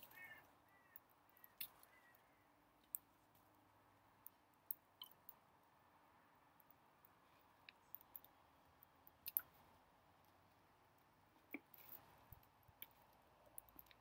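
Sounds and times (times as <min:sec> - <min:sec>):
faint clicks: 0:06.6 - 0:09.6, 0:10.2 - 0:14.0.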